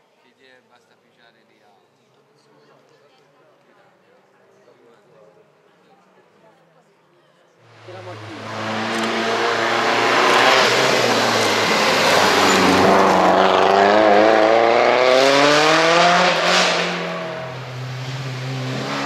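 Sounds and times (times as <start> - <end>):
rally car engine driving past: 7.7 - 19.0.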